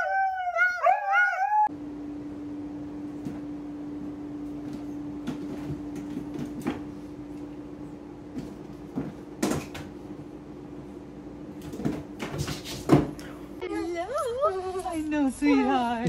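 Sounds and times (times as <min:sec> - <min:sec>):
low hum: 0:00.0 - 0:12.2.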